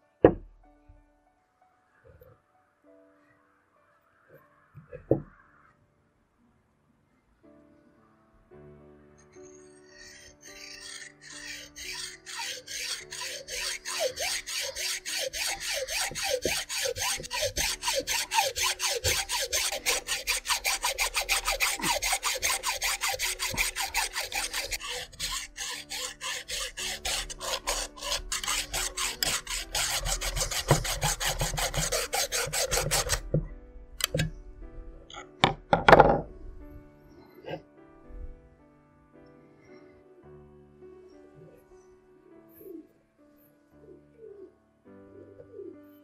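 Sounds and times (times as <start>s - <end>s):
hacksaw cutting coconut shell: 10.0s - 33.4s, 34.0s - 34.3s.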